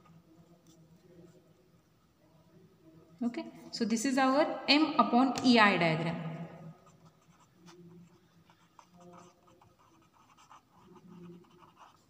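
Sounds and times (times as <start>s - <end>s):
marker pen scratching on paper: 6.8s - 12.0s.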